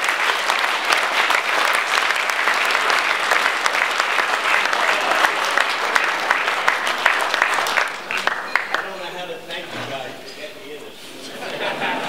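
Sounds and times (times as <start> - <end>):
people applauding: 0.0 - 9.2.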